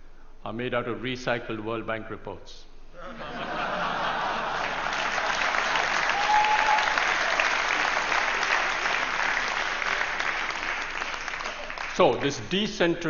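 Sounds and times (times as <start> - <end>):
audience applauding: 4.1 - 12.5.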